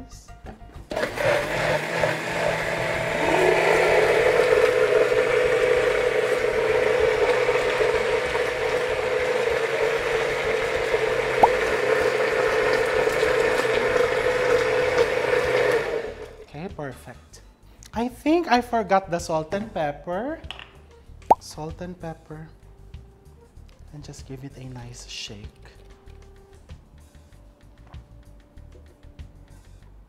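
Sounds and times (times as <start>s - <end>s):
blender motor running: 0.9s - 16.4s.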